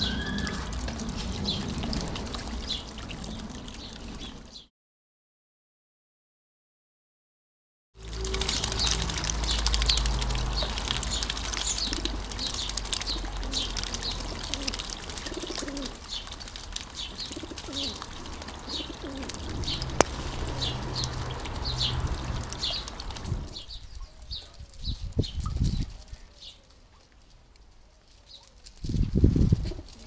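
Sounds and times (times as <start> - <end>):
low bird calls: 0.0 - 0.8
bird splashing in water: 0.0 - 4.6, 8.0 - 24.4
fountain trickling: 0.0 - 4.7, 8.0 - 25.8
small birds chirping: 8.1 - 29.1.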